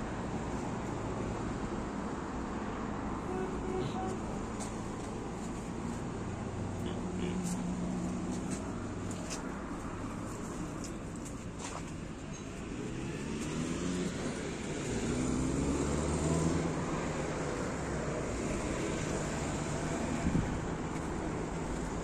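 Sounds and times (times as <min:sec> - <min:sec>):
street traffic noise: 0:00.0 - 0:22.0
vehicle engine driving past: 0:12.7 - 0:17.6.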